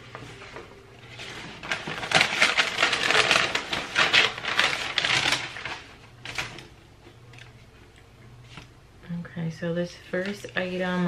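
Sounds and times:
packaging crinkling: 0:01.0 - 0:07.5.

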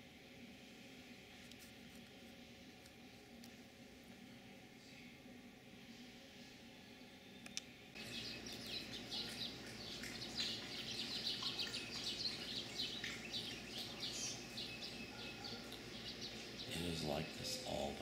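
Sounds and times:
small birds chirping: 0:07.0 - 0:18.0
faint clicks: 0:07.4 - 0:07.7.

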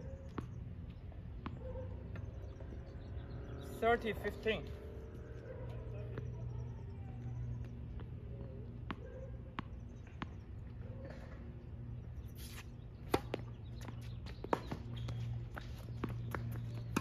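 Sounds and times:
steady low hum: 0:00.0 - 0:17.0
tennis ball bouncing on hard court: 0:01.4 - 0:02.8, 0:07.6 - 0:10.4, 0:12.4 - 0:17.0
racket striking tennis ball: 0:12.4 - 0:13.5.

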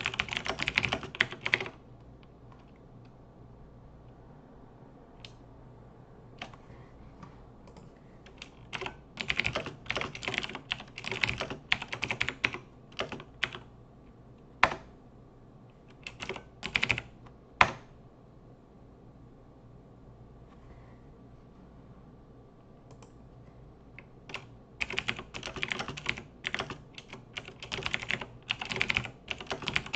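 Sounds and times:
typing on computer keyboard: 0:00.0 - 0:01.8, 0:07.7 - 0:13.7, 0:14.6 - 0:14.9, 0:15.9 - 0:17.9, 0:24.0 - 0:29.9.

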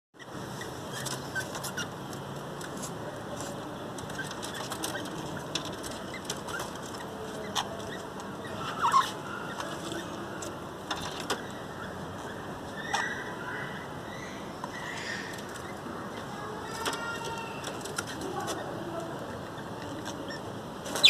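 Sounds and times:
budgerigars chirping: 0:11.4 - 0:17.2.

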